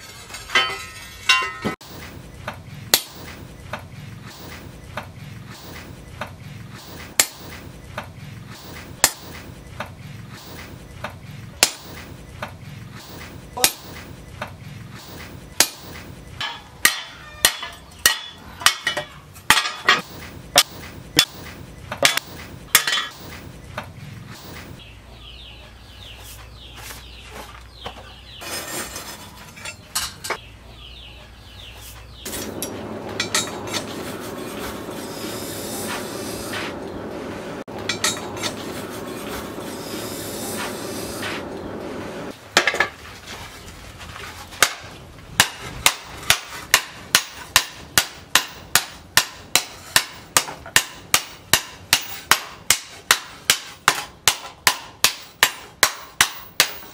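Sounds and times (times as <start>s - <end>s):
scraping on metal: 0.0s - 1.8s, 28.3s - 30.4s, 31.8s - 44.6s
hammer striking steel blade: 2.9s - 3.3s, 7.2s - 7.6s, 9.0s - 9.4s, 11.6s - 12.0s, 15.6s - 23.3s, 37.8s - 38.6s
steady rushing noise: 32.3s - 42.4s.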